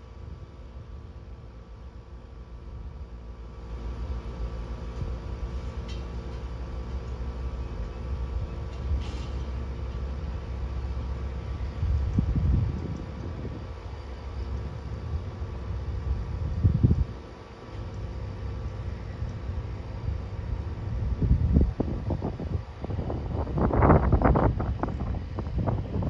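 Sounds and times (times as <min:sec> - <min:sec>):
small airplane engine droning: 0:00.0 - 0:26.0
low rumble: 0:07.0 - 0:17.3.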